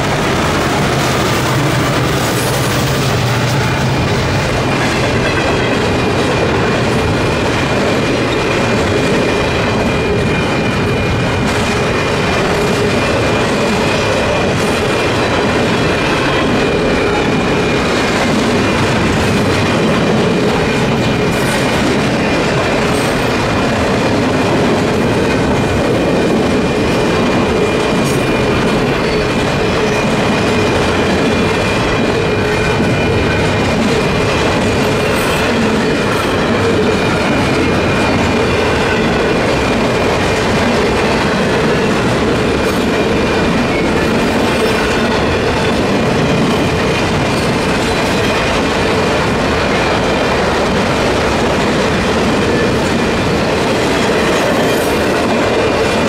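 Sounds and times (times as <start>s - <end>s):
locomotive engine drone: 0.0s - 54.1s
train wheels clacking on rails: 0.0s - 56.0s.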